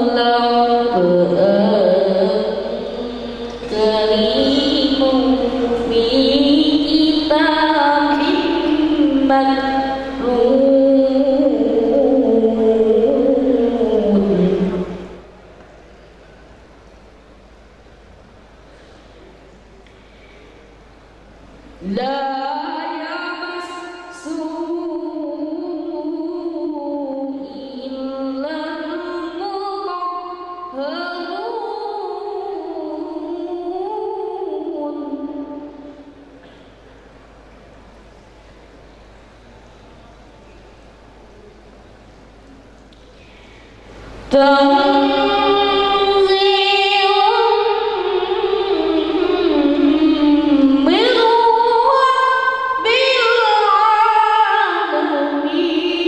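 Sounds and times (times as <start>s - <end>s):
boy singing unaccompanied: 0.0s - 15.0s, 44.3s - 56.0s.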